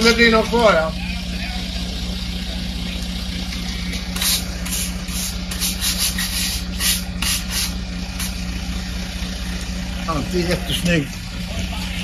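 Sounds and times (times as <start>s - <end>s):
diesel engine idling: 0.0s - 12.0s
broom strokes on wet concrete: 4.1s - 8.4s.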